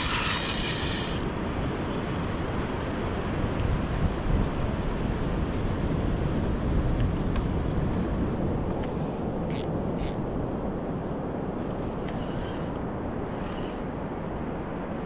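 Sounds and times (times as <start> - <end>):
short scratchy sounds: 0.0 - 1.2.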